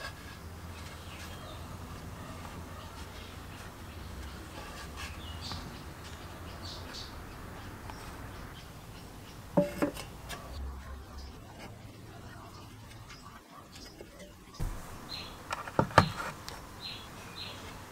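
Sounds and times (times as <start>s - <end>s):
low steady hum: 0.0s - 17.9s
tin can clanking on wood: 9.6s - 10.1s.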